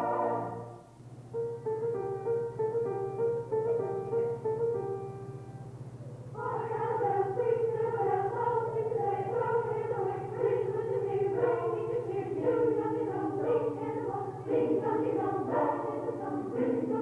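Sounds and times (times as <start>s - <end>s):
choir singing a carol: 0.0s - 0.9s, 6.4s - 17.0s
low steady hum: 0.0s - 17.0s.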